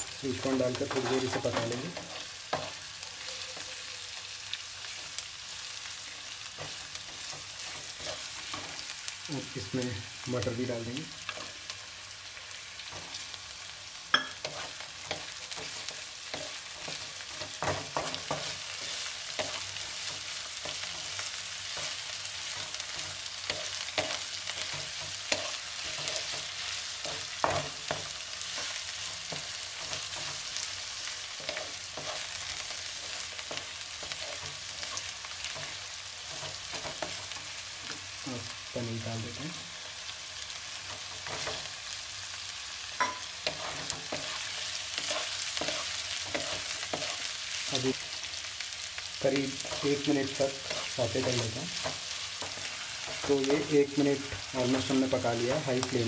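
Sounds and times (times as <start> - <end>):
spoon scraping a pan: 0.0 - 3.8, 14.0 - 38.0, 42.9 - 47.6
vegetables sizzling in oil: 0.0 - 56.0.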